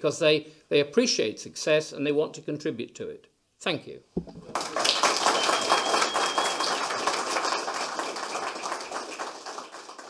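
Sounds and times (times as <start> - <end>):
audience applauding: 4.4 - 10.0.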